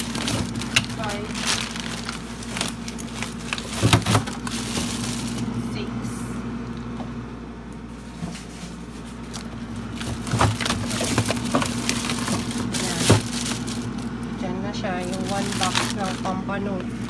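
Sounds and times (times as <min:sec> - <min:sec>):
plastic bag crinkling: 0:00.0 - 0:05.6, 0:09.1 - 0:17.0.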